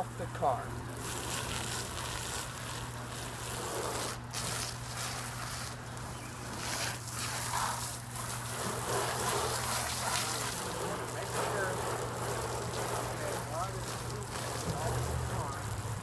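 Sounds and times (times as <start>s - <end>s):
hose water splashing on car: 0.0s - 16.0s.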